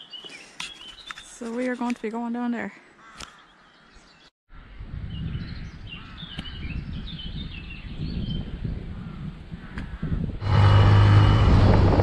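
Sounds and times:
birds chirping: 0.0 - 4.3
wind rumbling on microphone: 4.5 - 12.0.

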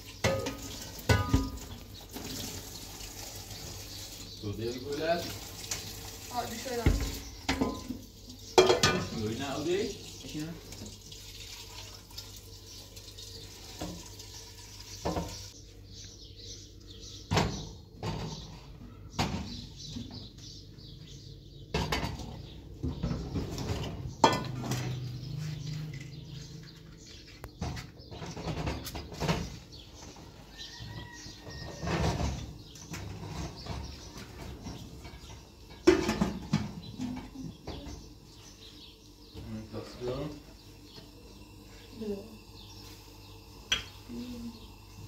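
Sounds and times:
pots and dishes clinking: 0.0 - 2.7, 6.8 - 9.7, 15.0 - 15.5, 21.7 - 25.1, 31.4 - 38.0.

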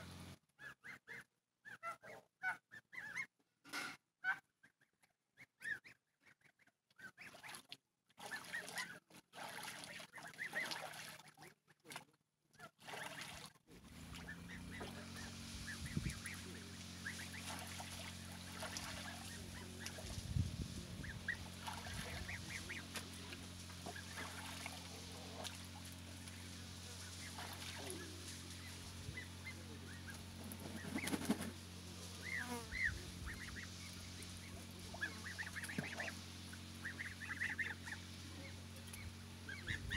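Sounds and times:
goslings peeping: 0.0 - 3.4, 4.2 - 11.5, 14.1 - 39.9
steady low hum: 13.7 - 39.9
geese honking: 14.1 - 20.1, 20.9 - 31.4, 32.1 - 39.9.

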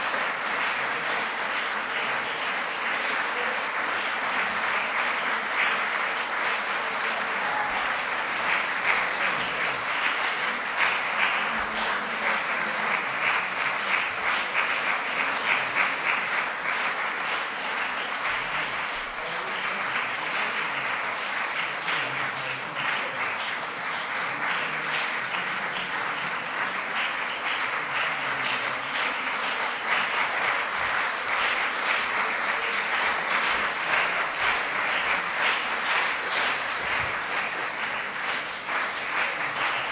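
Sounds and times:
audience applauding: 0.0 - 39.9.

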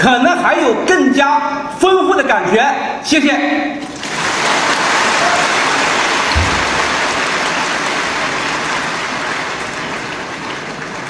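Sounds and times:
audience applauding: 3.8 - 11.0
low thump: 6.3 - 6.9.

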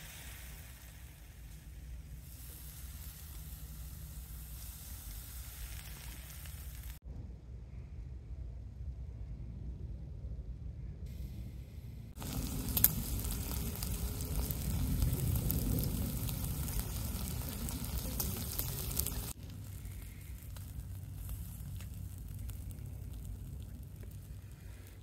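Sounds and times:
charcoal crackles and pops: 0.0 - 7.0, 12.1 - 25.0
meat sizzling on a grill: 0.0 - 7.0, 12.2 - 25.0.

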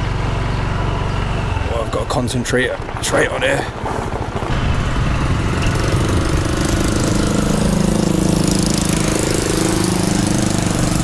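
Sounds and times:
moped engine running: 0.0 - 11.0
tyres on gravel: 1.3 - 9.5.

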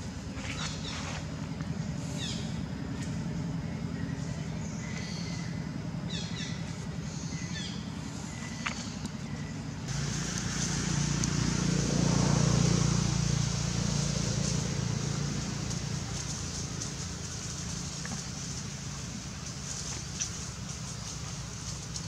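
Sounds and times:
vehicle engine drone passing: 9.9 - 22.0.

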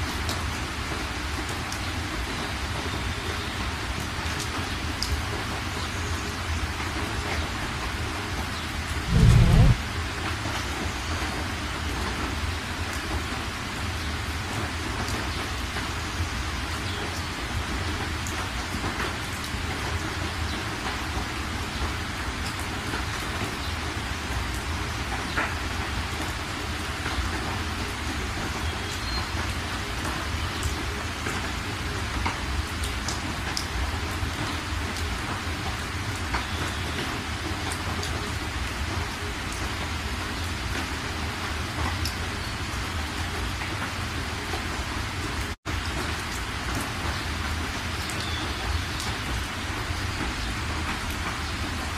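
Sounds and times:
car rumble on wet road: 9.1 - 9.8.

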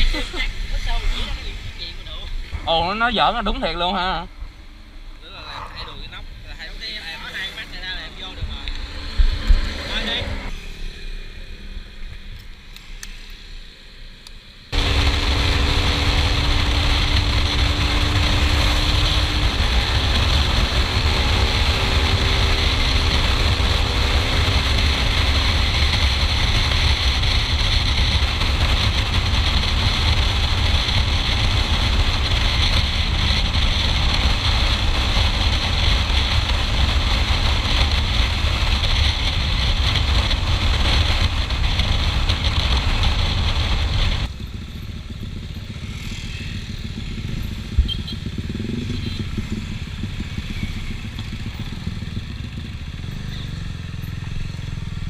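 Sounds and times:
motorcycle engine running: 13.4 - 55.0
wind noise on microphone: 14.7 - 44.3.

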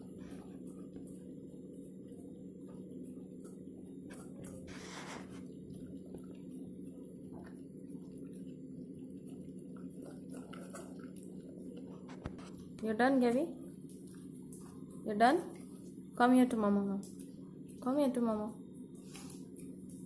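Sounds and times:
steady low hum: 0.0 - 20.0
dog chewing from metal bowl: 9.2 - 13.0.

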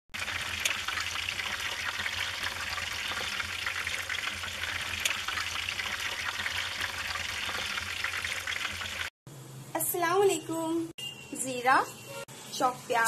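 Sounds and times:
wood fire crackling: 0.2 - 9.1.

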